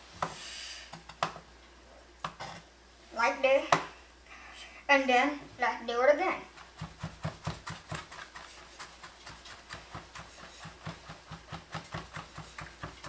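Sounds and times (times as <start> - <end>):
knife chopping on plastic board: 6.5 - 13.0.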